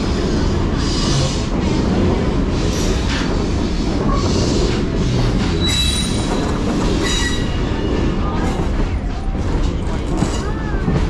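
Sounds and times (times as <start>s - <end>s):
train wheels rumbling on rail: 0.0s - 11.0s
high wheel squeal: 5.4s - 7.9s.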